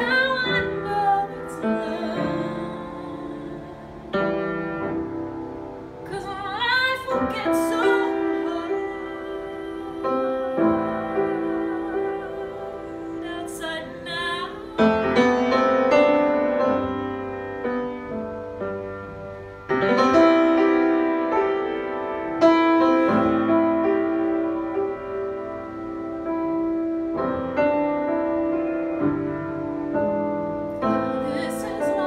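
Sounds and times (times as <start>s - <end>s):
woman singing with vibrato: 0.0s - 4.3s, 6.0s - 15.6s, 30.9s - 32.0s
piano chords: 0.0s - 32.0s.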